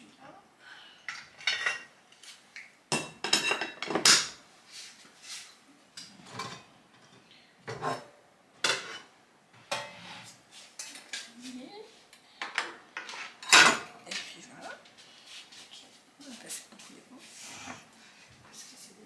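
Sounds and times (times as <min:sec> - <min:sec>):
dishes clattering: 0:01.1 - 0:01.9, 0:02.9 - 0:04.4, 0:06.0 - 0:10.0, 0:12.4 - 0:14.4.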